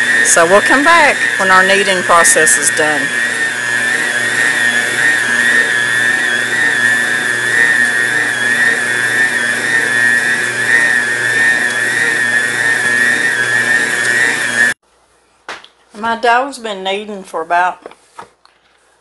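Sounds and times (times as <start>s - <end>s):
stand mixer motor whining: 0.0s - 14.8s.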